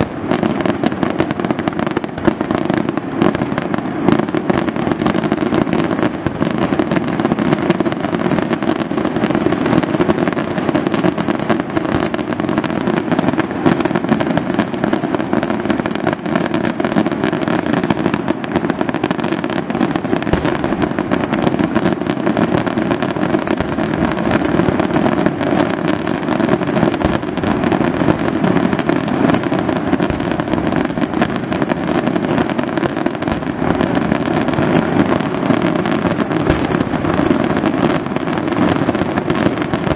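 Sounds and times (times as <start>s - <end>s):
fireworks bursts and crackling: 0.0s - 39.9s.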